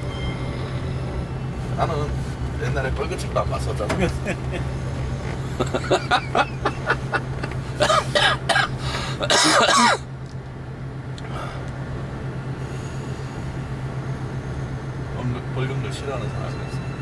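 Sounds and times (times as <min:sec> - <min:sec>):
van engine hum: 0:00.0 - 0:17.0.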